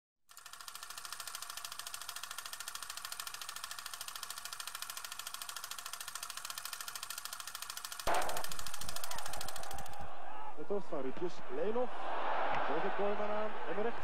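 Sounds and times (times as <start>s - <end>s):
film projector clatter: 0.3s - 10.1s.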